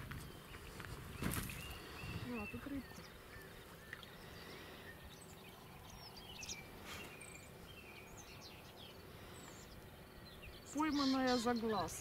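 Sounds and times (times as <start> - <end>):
high bird chirps: 4.9 - 12.0.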